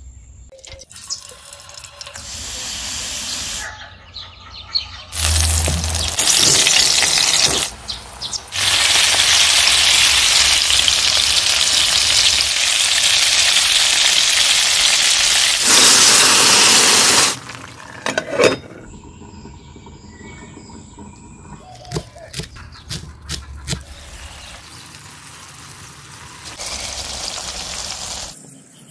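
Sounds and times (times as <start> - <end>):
vegetables sizzling in hot oil: 5.2 - 7.8, 8.5 - 17.4, 24.2 - 28.4.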